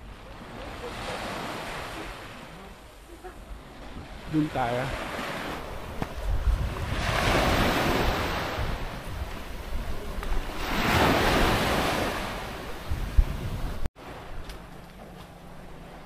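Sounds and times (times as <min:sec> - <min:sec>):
waves washing on sandy beach: 0:00.0 - 0:16.0
wind rumbling on microphone: 0:02.6 - 0:15.0.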